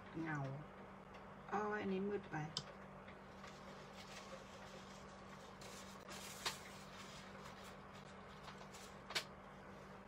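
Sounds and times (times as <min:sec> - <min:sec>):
steady low hum: 0:00.0 - 0:10.0
brush rustling on paper: 0:03.3 - 0:09.0.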